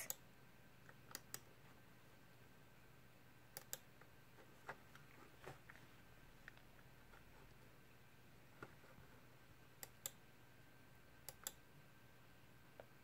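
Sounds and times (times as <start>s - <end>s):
computer mouse clicks: 0.9s - 1.5s, 3.5s - 3.9s, 9.8s - 10.2s, 11.2s - 11.6s.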